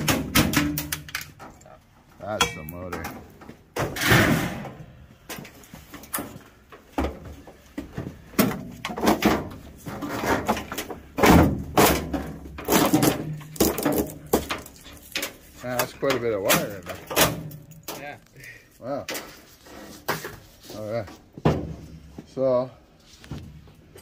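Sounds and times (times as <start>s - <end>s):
sheet metal clunks and rattles: 0.0s - 1.6s, 8.2s - 18.0s.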